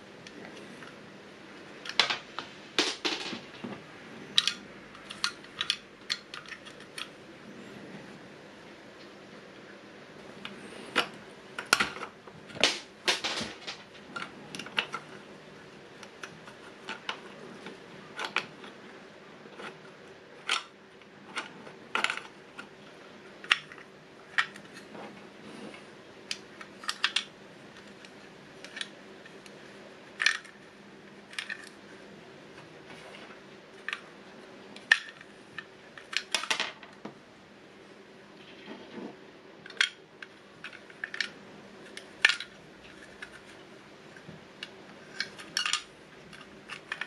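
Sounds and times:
plastic toy mechanism clicking: 20.4s - 20.7s, 26.3s - 27.9s.

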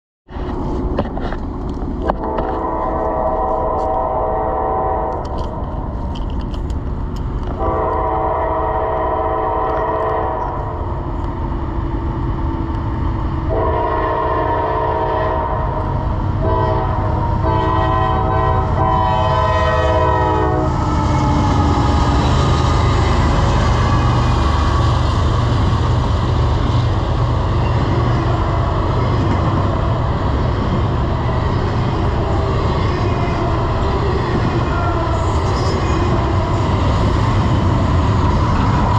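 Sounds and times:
train rumbling past on rails: 0.3s - 38.9s
train horn blasts: 2.0s - 5.6s, 7.6s - 10.9s, 13.5s - 24.9s.

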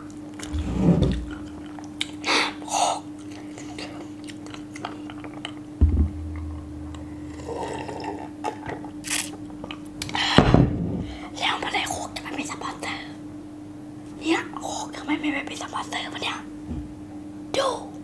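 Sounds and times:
faint steady hum: 0.0s - 18.0s
low thump: 5.8s - 7.6s.

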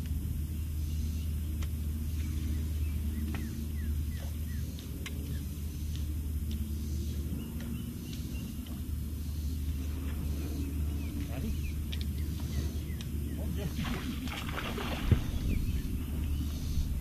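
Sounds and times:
low rumble: 0.0s - 17.0s
faint high chirps and clicks: 7.5s - 8.8s, 11.0s - 13.5s.

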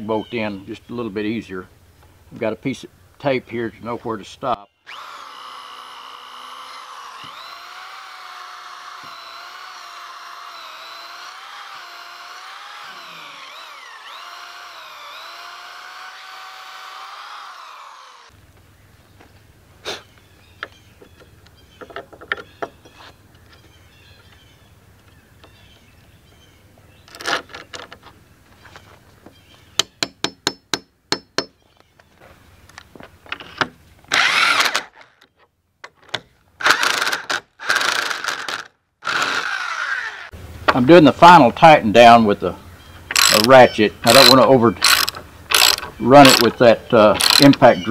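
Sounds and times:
electric drill boring into log: 4.8s - 18.4s, 34.1s - 35.0s, 36.6s - 40.4s, 43.1s - 47.7s
impact drill burst: 4.9s - 18.4s, 34.1s - 34.9s, 36.6s - 40.3s, 43.1s - 46.5s, 47.2s - 47.5s.

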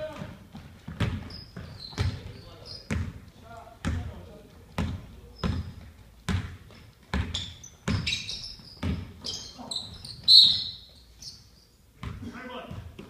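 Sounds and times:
basketball bouncing on hardwood: 0.0s - 3.2s, 3.8s - 9.4s
sneakers squeaking on floor: 0.0s - 13.0s.

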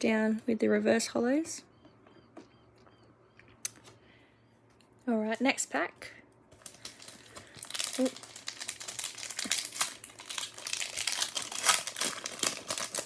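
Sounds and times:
foil wrapper crinkling and tearing: 6.6s - 13.0s.

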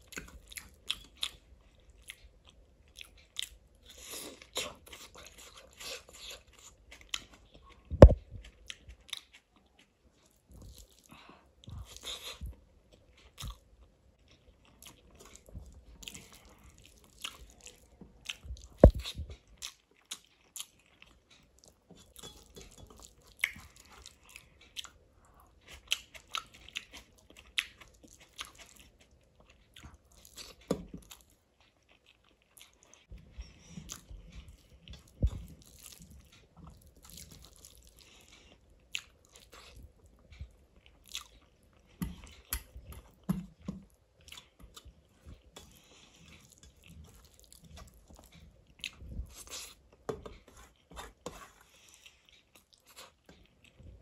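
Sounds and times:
person chewing food: 0.0s - 54.0s.

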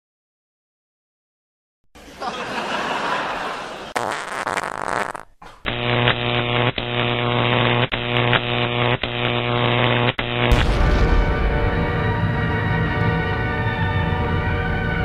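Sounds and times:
fart sound effect: 3.9s - 5.7s.

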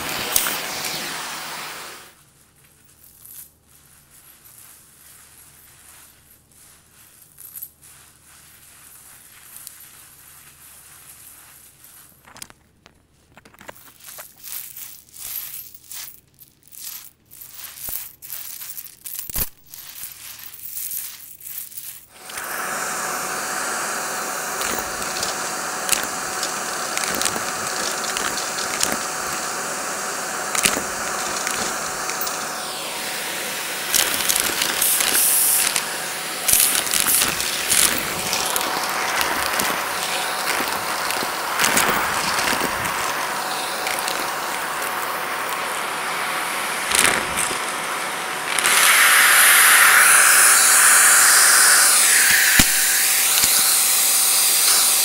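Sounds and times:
vacuum cleaner running: 0.0s - 2.2s, 22.1s - 55.0s
coins and gems clinking on carpet: 2.2s - 22.4s, 24.2s - 45.7s, 46.9s - 47.6s, 52.6s - 55.0s
coin clicking: 16.7s - 22.1s.

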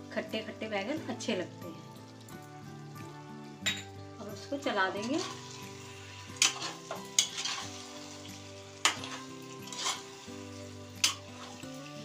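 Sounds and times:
metal spatula scraping food: 5.0s - 12.0s
spatula clacking against pan: 6.4s - 7.7s, 8.8s - 10.0s, 11.0s - 11.6s.

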